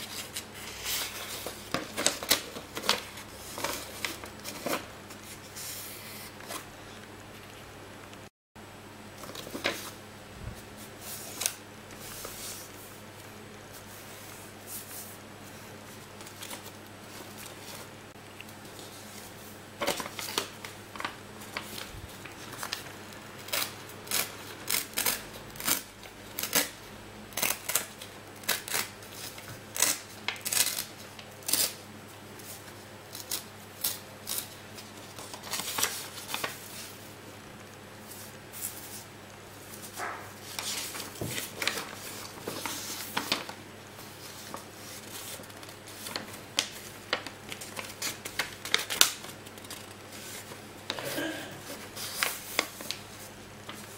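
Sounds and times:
paper crackling and ripping: 0.0s - 6.6s, 18.8s - 26.8s, 27.4s - 31.8s, 33.1s - 36.9s, 39.9s - 53.9s.

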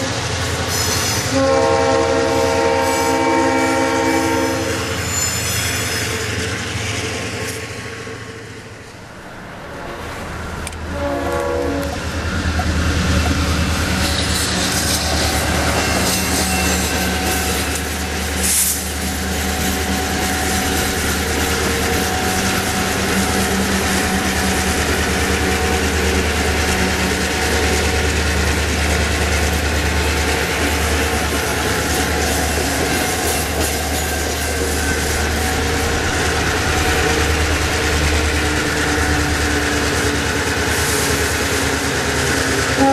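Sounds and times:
diesel locomotive engine drone: 0.0s - 42.9s
train wheels on rail: 0.0s - 42.9s
locomotive horn blast: 1.3s - 4.9s, 10.8s - 12.0s.

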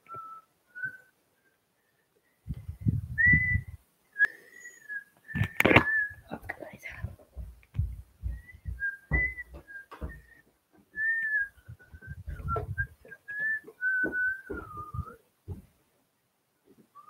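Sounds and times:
person whistling a tune: 0.1s - 1.1s, 3.1s - 6.3s, 8.2s - 10.4s, 11.0s - 15.2s
footsteps: 5.3s - 15.8s
phone being handled: 5.4s - 6.0s.

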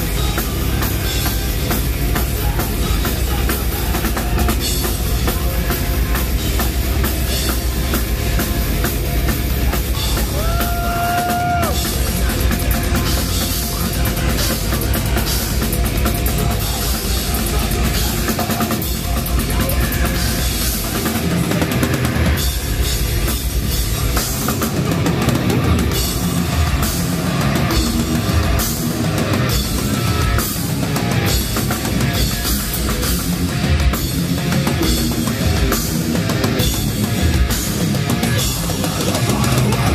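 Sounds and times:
distorted guitars: 0.0s - 39.9s
fast heavy drumming: 0.0s - 39.9s
live heavy metal band: 0.0s - 39.9s
vocalist screaming: 10.2s - 12.0s.

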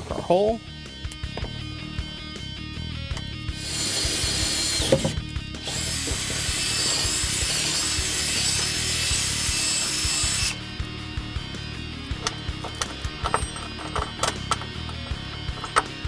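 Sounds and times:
background music: 0.0s - 16.0s
cordless drill boring through sheet steel: 3.6s - 10.6s.

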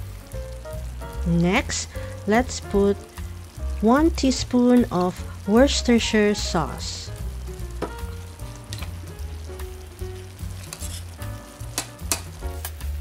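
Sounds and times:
sauce sizzling and bubbling: 0.0s - 13.0s
soft background music: 0.0s - 13.0s
utensil stirring: 10.0s - 12.4s
utensil clicking against pan: 11.7s - 12.8s.

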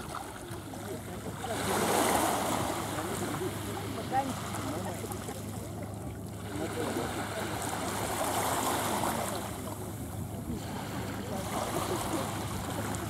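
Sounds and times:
small waves washing on shore: 0.0s - 13.0s.

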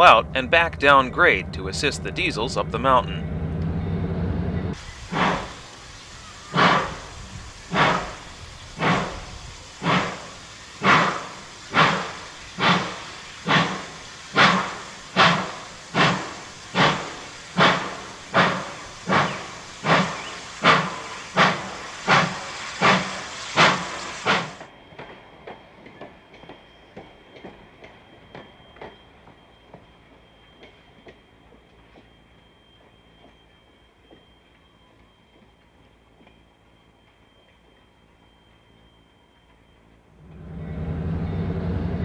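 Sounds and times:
steam locomotive chuffing: 0.0s - 33.8s, 40.0s - 42.0s.

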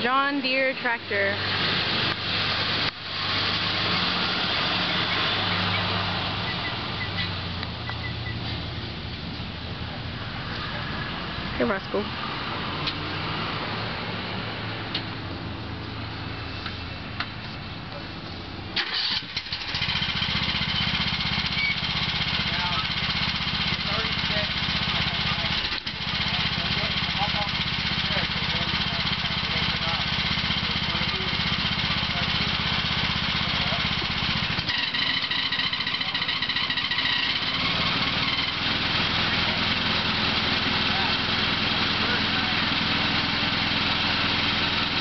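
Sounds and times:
lawn tractor engine running: 0.0s - 9.5s, 14.8s - 45.0s
high engine whine: 0.0s - 45.0s
starter click and whirr: 18.8s - 20.0s.

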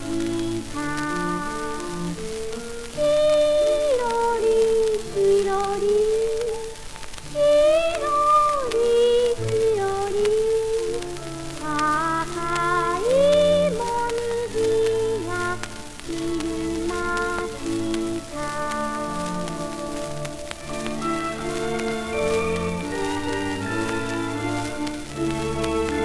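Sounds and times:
girl singing: 0.0s - 26.0s
record surface crackle: 0.0s - 26.0s
small orchestra playing: 14.4s - 26.0s.

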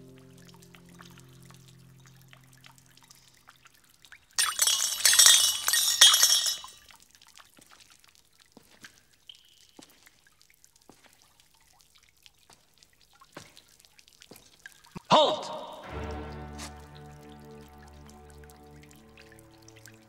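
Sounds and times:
water dripping: 0.0s - 20.0s
glassy clink: 4.4s - 6.8s
water splashing into ceramic bowl: 4.4s - 6.8s.

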